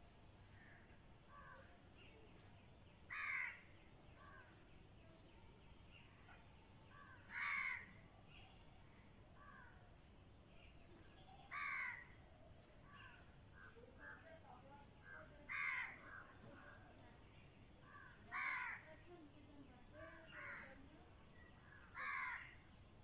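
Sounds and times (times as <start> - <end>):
crow cawing: 3.1 - 3.6, 7.3 - 7.9, 11.5 - 12.0, 15.5 - 16.2, 17.9 - 18.8, 22.0 - 22.6
faint bird calls: 3.1 - 4.7, 10.6 - 13.9, 20.0 - 22.7.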